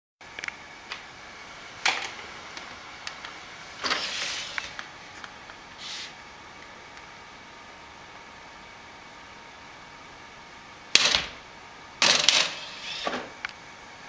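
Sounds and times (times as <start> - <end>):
sliding noise: 3.8 - 4.8, 12.4 - 13.3.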